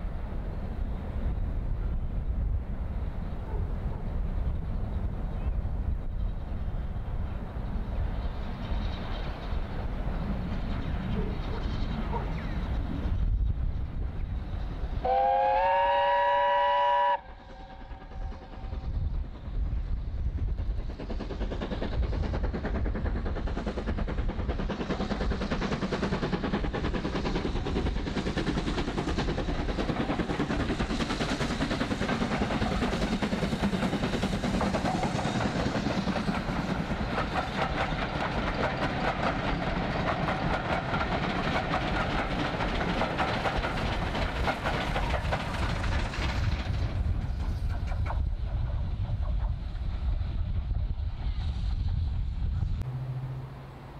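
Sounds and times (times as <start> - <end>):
locomotive exhaust: 14.3 - 19.3
steam locomotive whistle: 15.0 - 18.2
wheels clattering over rail joints: 21.0 - 49.7.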